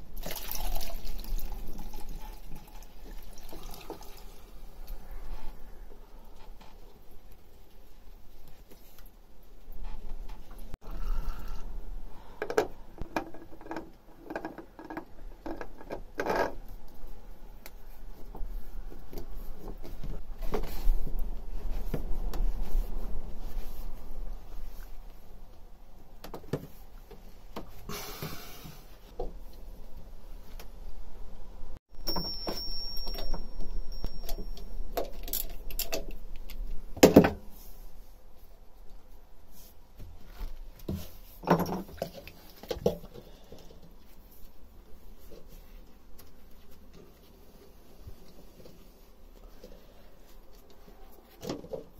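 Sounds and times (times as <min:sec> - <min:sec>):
cloth wiping and scraping: 0:17.8 - 0:25.4, 0:44.1 - 0:51.4.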